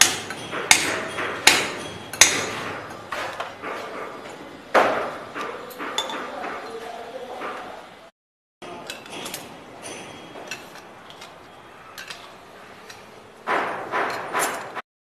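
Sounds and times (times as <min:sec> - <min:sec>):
spanner clinking on metal nuts: 0:08.6 - 0:14.7.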